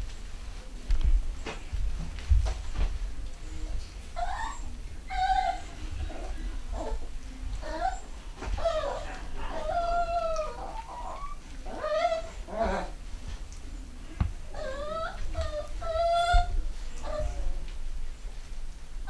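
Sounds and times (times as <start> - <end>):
puppies whining and yelping: 4.2 - 7.0, 7.6 - 13.0, 14.5 - 17.5.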